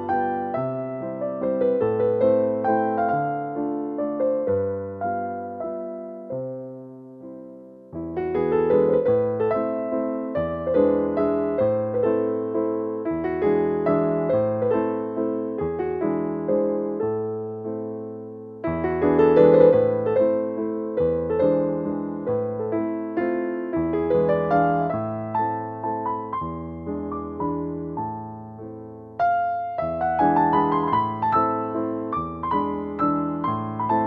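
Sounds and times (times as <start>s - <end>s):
gentle electric piano melody: 0.0s - 34.0s.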